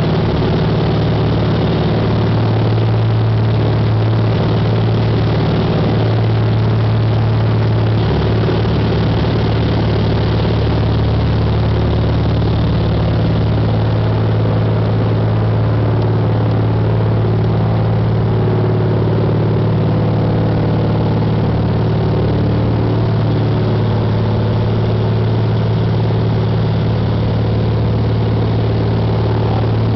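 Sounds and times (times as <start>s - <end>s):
propeller airplane engine drone: 0.0s - 29.9s.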